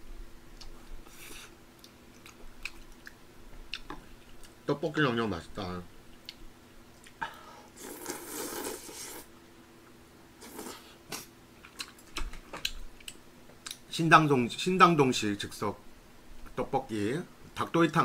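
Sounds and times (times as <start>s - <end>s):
airy mouth sound: 7.8s - 9.3s, 10.4s - 11.3s.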